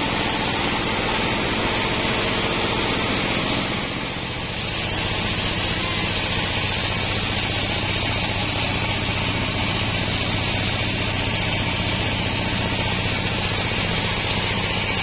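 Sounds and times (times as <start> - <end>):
band saw cutting through log: 0.0 - 15.0
low machine hum: 0.0 - 15.0.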